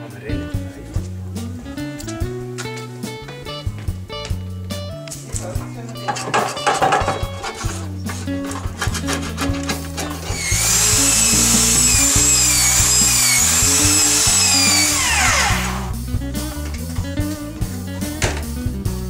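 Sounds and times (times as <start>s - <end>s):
background music with beat: 0.0s - 19.0s
angle grinder whining: 10.1s - 16.0s.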